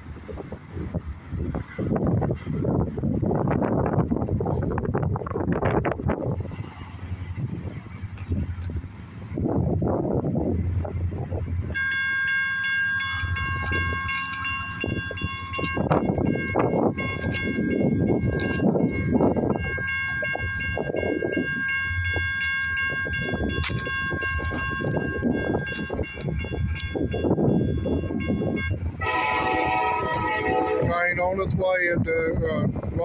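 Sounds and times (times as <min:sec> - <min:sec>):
low rumbling noise: 0:00.0 - 0:11.9
crossing warning bell ringing: 0:08.8 - 0:31.5.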